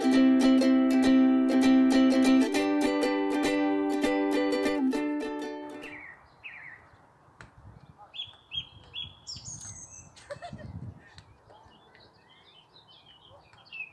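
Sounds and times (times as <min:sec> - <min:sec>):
small birds singing and chirping: 0:05.7 - 0:13.9.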